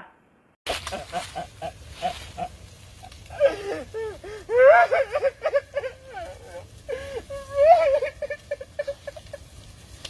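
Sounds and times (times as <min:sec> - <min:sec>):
man wailing and sobbing: 0:03.1 - 0:09.2.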